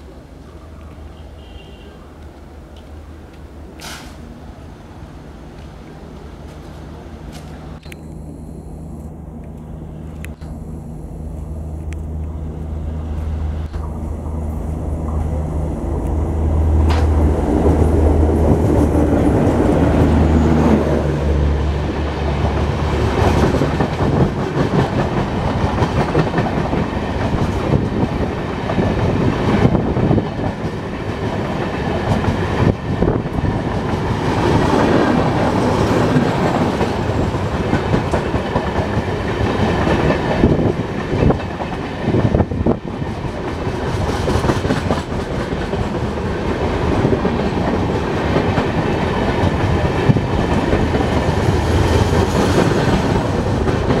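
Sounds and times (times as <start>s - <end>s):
train wheels rumbling on rail: 0.0s - 8.0s, 8.8s - 54.0s.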